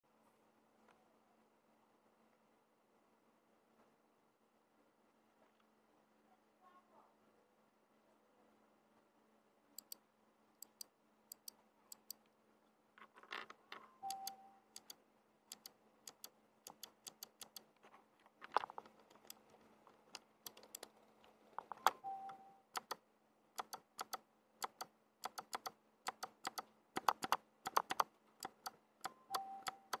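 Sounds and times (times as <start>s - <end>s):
mechanical keyboard switch clicks: 14.1s - 17.6s, 20.5s - 20.9s, 21.6s - 23.0s, 23.6s - 30.0s.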